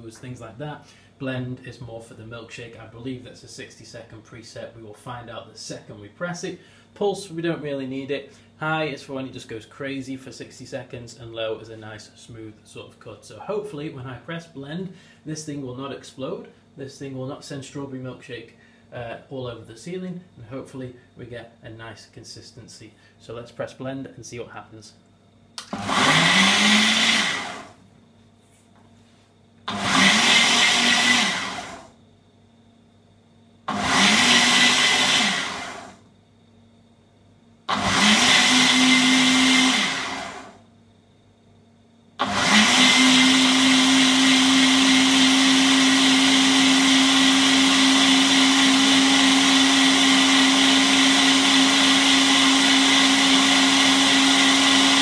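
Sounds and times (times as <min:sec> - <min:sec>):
blender motor whining: 0:25.6 - 0:27.8, 0:29.7 - 0:32.0, 0:33.7 - 0:36.0, 0:37.7 - 0:40.6, 0:42.2 - 0:55.0.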